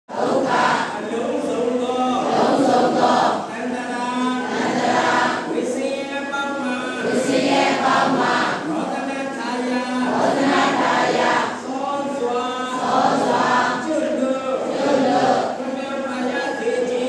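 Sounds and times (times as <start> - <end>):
group of voices chanting: 0.1 - 1.0, 2.2 - 3.5, 4.4 - 5.5, 7.0 - 8.8, 10.1 - 11.6, 12.7 - 13.9, 14.6 - 15.6.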